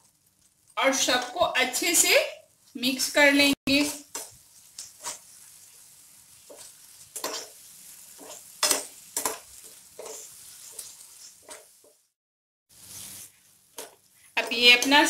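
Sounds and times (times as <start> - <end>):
faint sizzle: 0.0 - 15.0
spatula scraping a pan: 3.7 - 12.1, 12.8 - 15.0.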